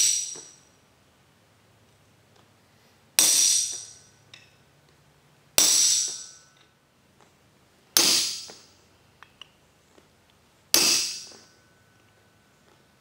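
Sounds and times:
hammer striking chisel on steel: 3.2 - 4.6, 5.6 - 6.7, 8.0 - 8.6, 10.7 - 11.6.

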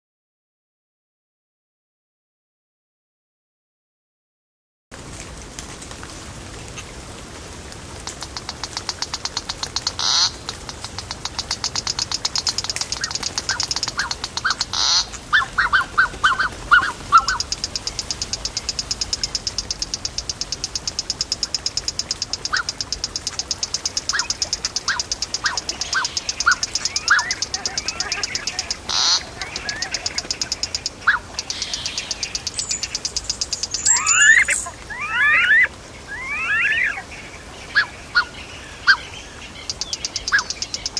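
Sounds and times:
sharp clicks: 8.0 - 34.7, 39.6 - 40.9
short lower calls: 9.9 - 11.8, 13.0 - 33.0, 33.6 - 37.1
high pulsing insect trill: 16.2 - 35.3.

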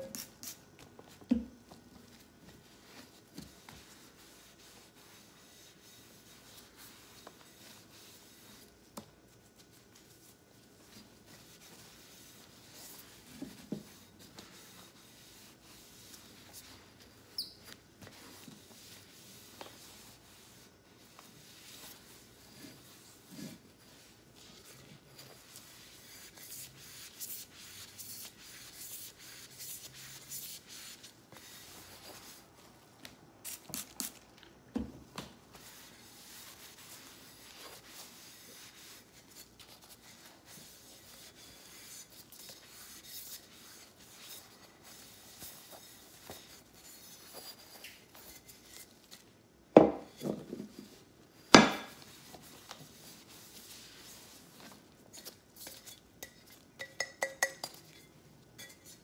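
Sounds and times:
cloth wiping a lampshade: 2.0 - 8.8, 9.4 - 32.8, 35.5 - 48.8, 51.9 - 55.8.

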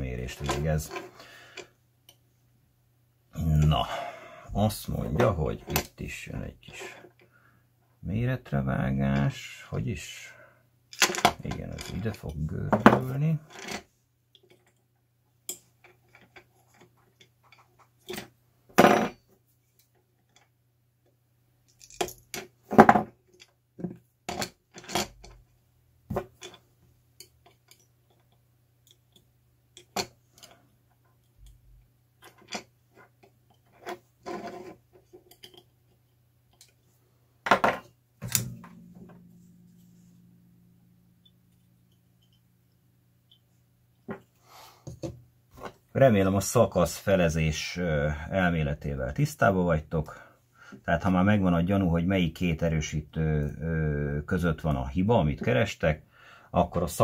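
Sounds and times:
faint low hum: 35.3 - 57.0.

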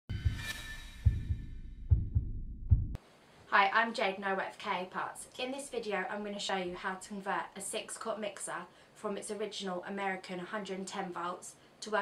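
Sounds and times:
heartbeat-like double thumps: 0.1 - 3.0.

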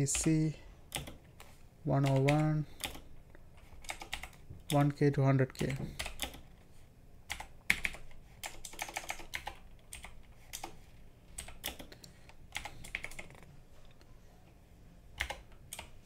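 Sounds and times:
typing on computer keyboard: 0.1 - 1.2, 2.0 - 3.0, 3.8 - 4.9, 5.6 - 6.5, 7.3 - 10.8, 11.4 - 13.4, 15.2 - 16.0.

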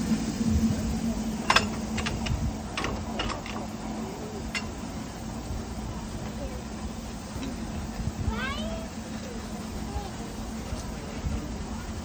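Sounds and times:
steam locomotive metallic clicks and knocks: 0.8 - 8.1.

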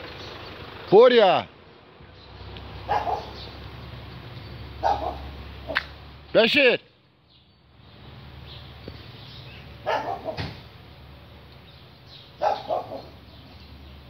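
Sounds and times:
dog barking: 2.8 - 3.4, 4.8 - 5.8, 9.8 - 10.6, 12.4 - 13.2.

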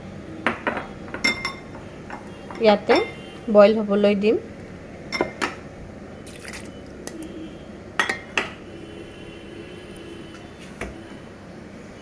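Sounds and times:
utensils clinking on metal pot: 0.7 - 1.8, 8.0 - 8.6.

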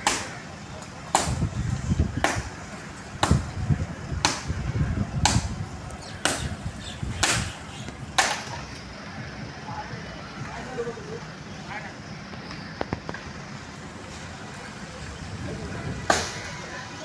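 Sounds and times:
chopping blows on wood: 0.0 - 0.4, 1.1 - 1.5, 2.2 - 2.5, 3.2 - 3.5, 4.2 - 4.5, 5.2 - 5.6, 6.2 - 8.6, 16.0 - 16.4.

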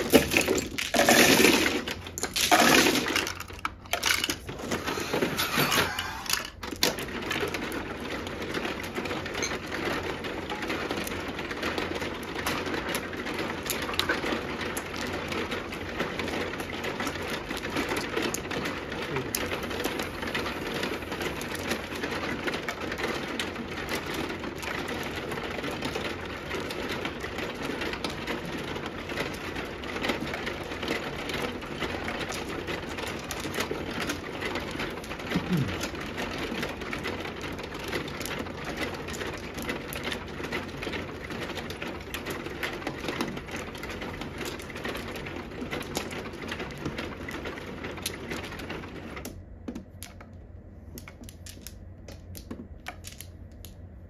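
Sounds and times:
plastic tiles clacking: 0.0 - 7.8, 49.7 - 54.0
shuffling mechanism rattling: 0.0 - 25.4.

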